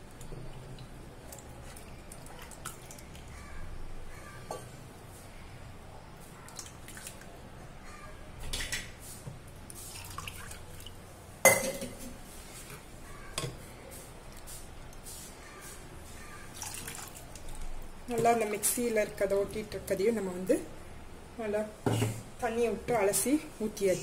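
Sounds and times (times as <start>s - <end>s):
liquid pouring into a bowl: 0.0s - 3.6s, 9.7s - 11.6s, 16.4s - 17.9s
small splashes and drips: 0.0s - 3.7s, 6.4s - 7.4s, 9.7s - 11.1s, 16.2s - 18.7s.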